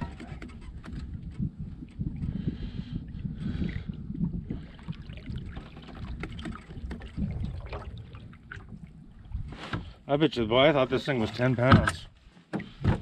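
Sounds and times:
water splashing against kayak: 0.0s - 10.1s
low uneven rumble: 0.0s - 12.8s.

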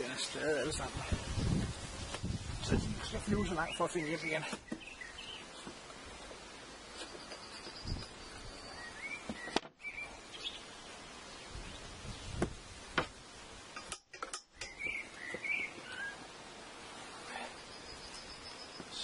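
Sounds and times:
bird chirps: 3.3s - 5.7s, 6.7s - 10.7s, 14.5s - 16.2s, 17.4s - 19.0s.

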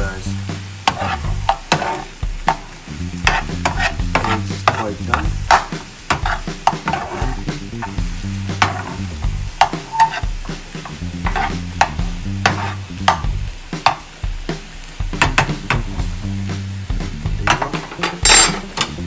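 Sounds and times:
eggs sizzling: 0.0s - 19.0s
spatula scraping a frying pan: 0.7s - 13.2s, 17.5s - 18.9s.

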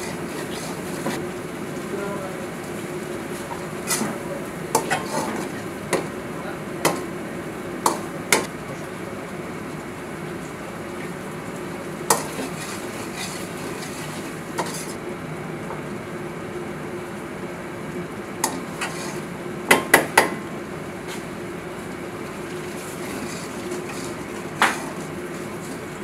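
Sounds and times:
ladle stirring in gravy: 0.0s - 8.5s, 11.8s - 15.0s, 18.4s - 19.4s, 21.0s - 26.0s
food sizzling: 0.0s - 26.0s.

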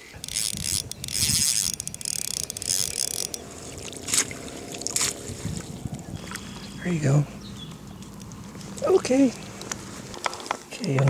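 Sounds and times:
fishing reel clicking: 0.0s - 4.0s
fish splashing: 0.1s - 6.8s.

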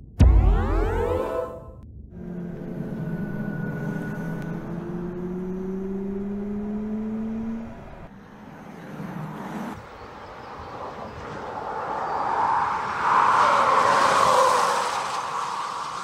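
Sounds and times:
electric drive whine rising: 0.0s - 8.1s.

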